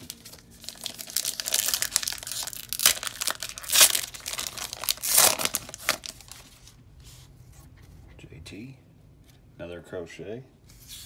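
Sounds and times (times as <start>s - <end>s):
wrapper ripping: 0.0s - 6.5s
wrapper crackling and rustling: 0.0s - 6.8s.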